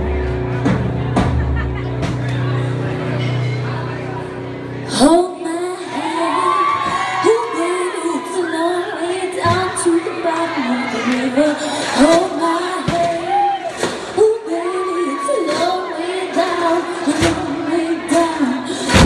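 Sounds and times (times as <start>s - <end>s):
woman singing into microphone: 4.9s - 13.4s, 14.2s - 19.0s.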